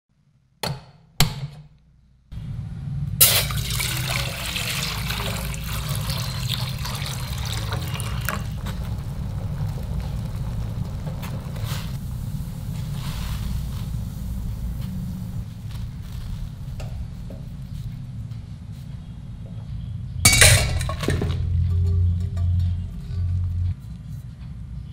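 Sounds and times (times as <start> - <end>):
gas burner rumbling: 2.3 - 23.8
water pouring into metal pot: 3.2 - 17.1.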